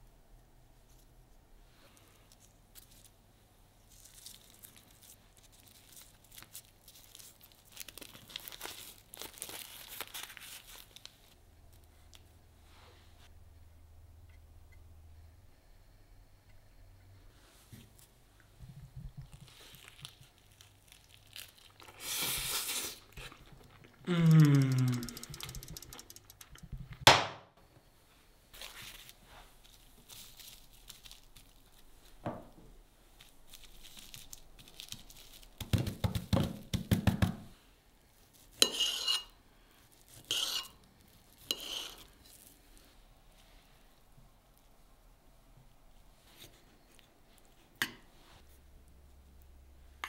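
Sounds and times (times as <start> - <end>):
quick run of clicks: 24.5 - 27.0.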